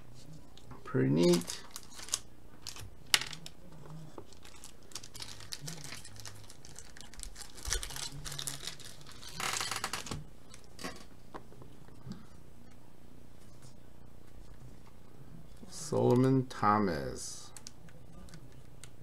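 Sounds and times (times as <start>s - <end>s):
plastic sleeve crinkling: 1.2s - 10.8s.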